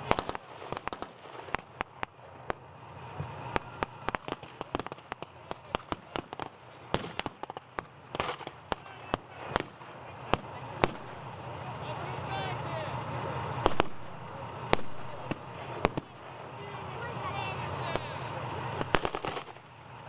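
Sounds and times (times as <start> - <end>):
blank gunshots: 3.5 - 11.2, 17.8 - 19.6.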